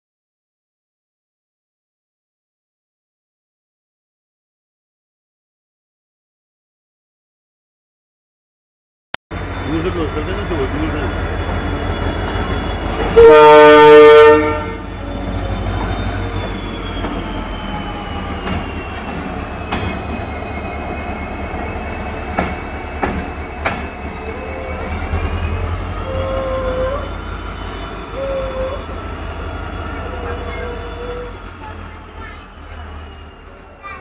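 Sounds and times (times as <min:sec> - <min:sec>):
diesel locomotive engine rumbling: 0:09.3 - 0:34.0.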